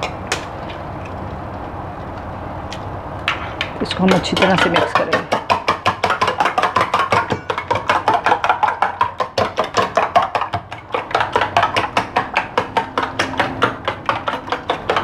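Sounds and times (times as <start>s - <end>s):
spoon beating eggs in metal bowl: 3.8s - 15.0s.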